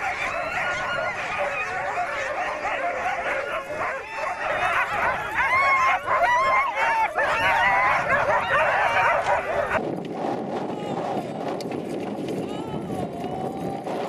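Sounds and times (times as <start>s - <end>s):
dogs barking and yelping: 0.0s - 9.8s.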